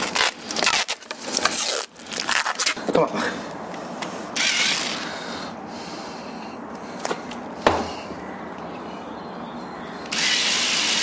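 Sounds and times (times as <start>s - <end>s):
power drill whining: 4.4s - 5.0s, 10.1s - 11.0s.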